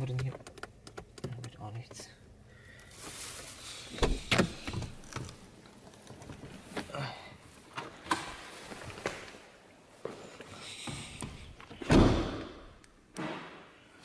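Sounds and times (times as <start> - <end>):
car door clunks: 4.0 - 5.4.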